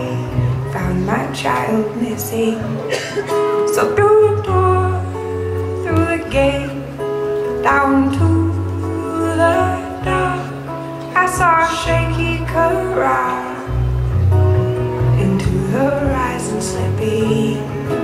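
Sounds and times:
guitar strumming: 0.0 - 18.0
upright bass notes: 3.8 - 18.0.

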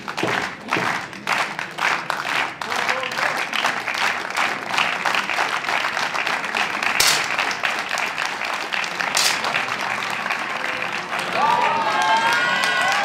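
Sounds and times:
crowd clapping: 0.0 - 13.0
sharp cracks: 7.0 - 7.6, 9.1 - 9.6.

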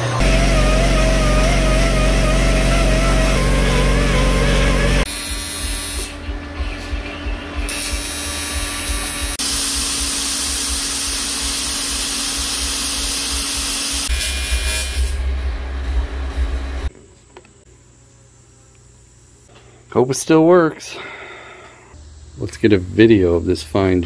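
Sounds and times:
welding arc buzzing and hissing: 0.0 - 6.2, 7.7 - 16.9.

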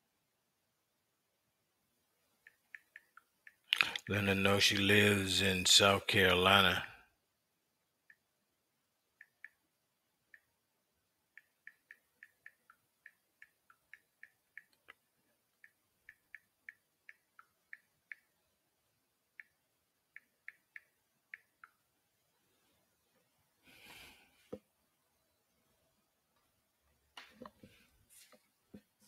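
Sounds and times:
keyboard typing clicks: 2.4 - 4.0.

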